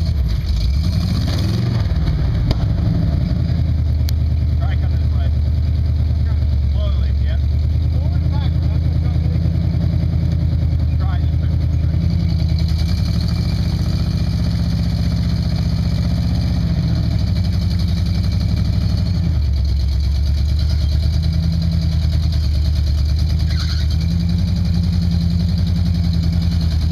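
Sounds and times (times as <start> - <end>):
engine revving under load: 0.0 - 26.9.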